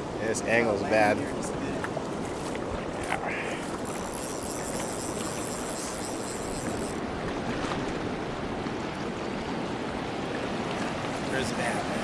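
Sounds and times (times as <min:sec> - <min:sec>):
surf washing over shallow water: 0:00.0 - 0:12.0
wind on microphone: 0:01.6 - 0:11.2.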